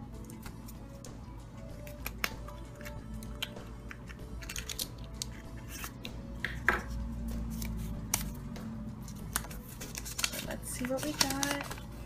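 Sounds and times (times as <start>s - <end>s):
plastic capsule snapping: 1.8s - 6.7s
plastic capsule clicks and scrapes: 1.9s - 6.1s.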